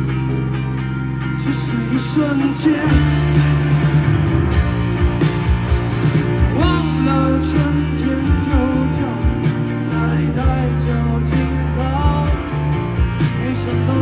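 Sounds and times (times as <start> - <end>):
person singing: 1.4 - 3.6, 6.5 - 12.6, 13.2 - 14.0
live band music: 1.4 - 14.0.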